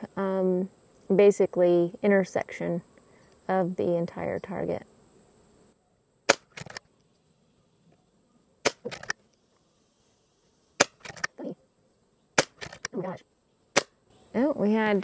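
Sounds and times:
air rifle shots: 6.3 - 6.8, 8.6 - 9.1, 10.8 - 11.3, 12.4 - 12.9
quiet quick clicks: 6.3 - 6.8.

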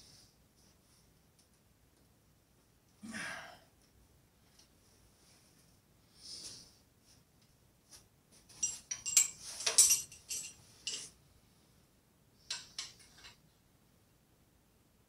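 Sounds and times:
metal hand tools clinking: 8.5 - 11.2, 12.5 - 13.4.

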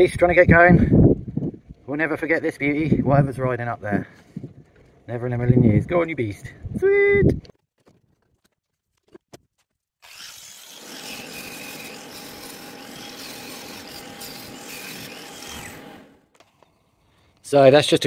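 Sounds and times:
angle grinder grinding steel: 10.0 - 16.6.

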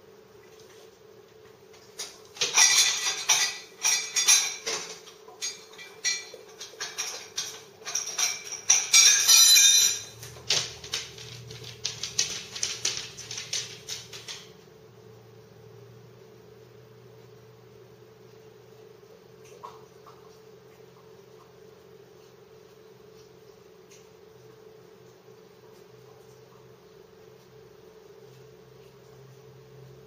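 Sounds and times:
dishes clinking and rattling: 1.9 - 14.5.

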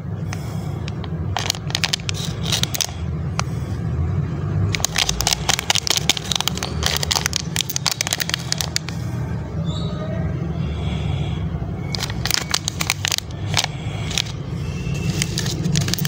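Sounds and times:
plastic packet crinkling: 0.9 - 3.0, 4.7 - 9.0, 11.9 - 14.4, 15.0 - 16.0.

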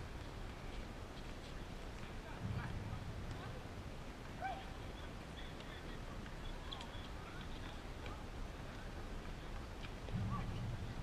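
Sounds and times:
distant voices: 0.0 - 11.0
low rumble: 10.0 - 11.0.

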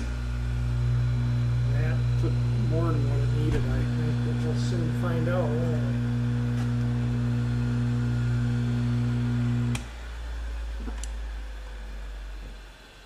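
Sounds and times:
grinding wheel coasting rumble: 0.0 - 9.8
electric motor humming: 0.0 - 13.0.

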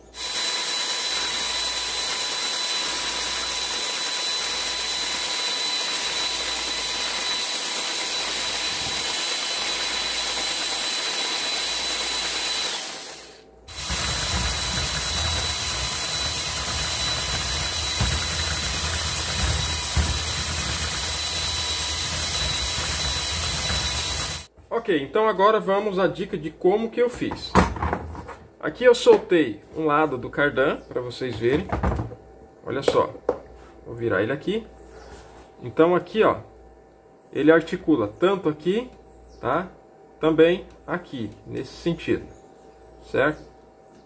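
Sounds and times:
electric motor whirring and whining: 0.0 - 24.5.

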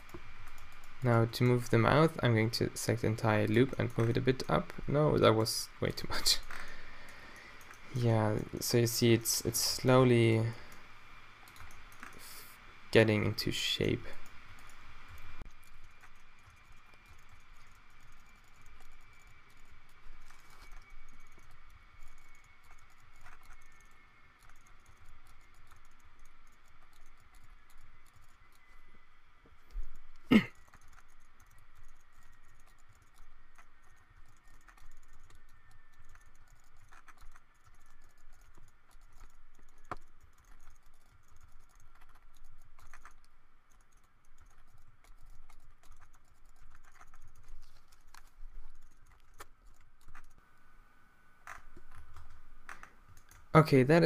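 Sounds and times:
keyboard and mouse clicks: 0.0 - 10.8, 11.4 - 12.4, 13.0 - 28.9, 29.7 - 50.4, 51.4 - 53.5
faint high whine: 0.0 - 54.0.

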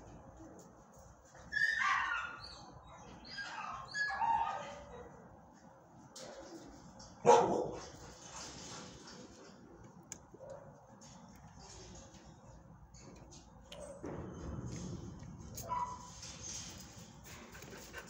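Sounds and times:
dog whining yips: 1.5 - 4.8
dog barking: 7.2 - 7.9, 10.4 - 10.8, 15.6 - 16.1.

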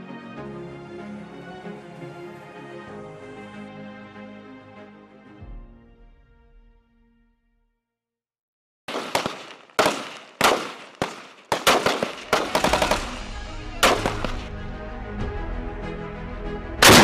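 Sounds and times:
low music bed: 0.0 - 7.1, 12.4 - 17.0
rifle gunfire: 8.9 - 14.5.

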